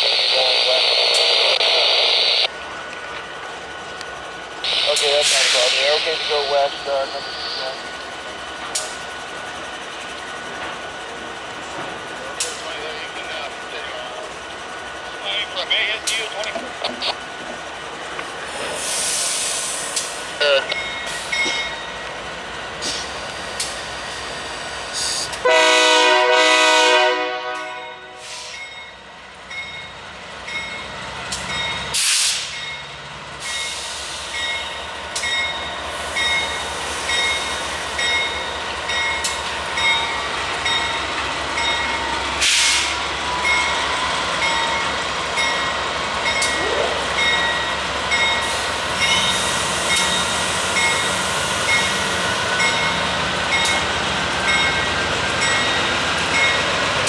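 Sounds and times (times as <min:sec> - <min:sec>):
train rumbling: 0:00.0 - 0:57.0
locomotive air horn blast: 0:25.0 - 0:28.6.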